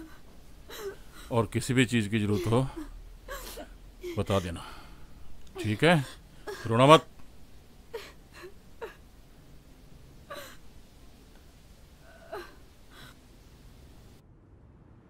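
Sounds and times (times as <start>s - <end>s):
woman sobbing quietly: 0.0s - 1.4s, 2.2s - 4.9s, 5.5s - 7.2s, 7.8s - 9.1s, 10.2s - 10.7s, 12.0s - 13.2s.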